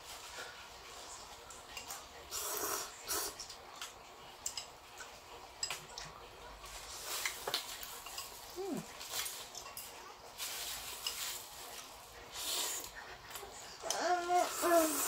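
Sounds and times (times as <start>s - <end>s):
people slurping noodles: 2.3s - 3.5s, 12.3s - 15.0s
chopsticks clicking against bowls: 3.4s - 6.2s, 9.1s - 10.0s.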